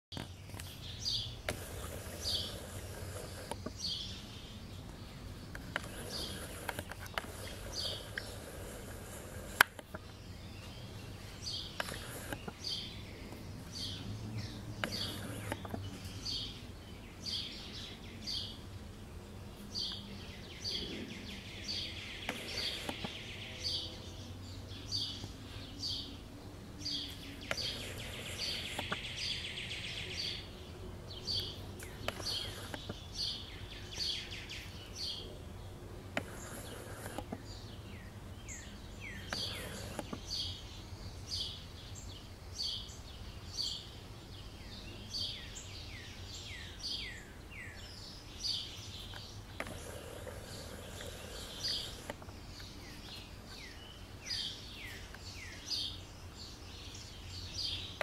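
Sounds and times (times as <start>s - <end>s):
bird chip calls: 0.2s - 16.6s, 19.8s - 24.0s, 26.8s - 30.6s, 31.2s - 35.4s, 36.2s - 42.0s.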